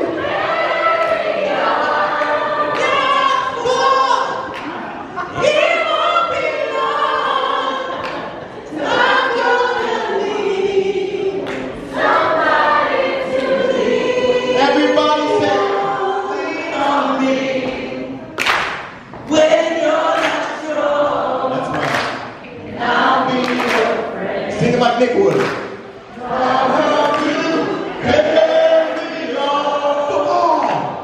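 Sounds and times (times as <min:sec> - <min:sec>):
men singing in harmony: 0:12.0 - 0:18.3, 0:26.2 - 0:30.9.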